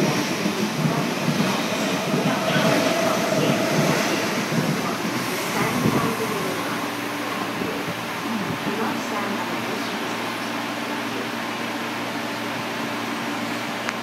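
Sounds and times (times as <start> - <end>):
train passing at speed: 0.0 - 14.0.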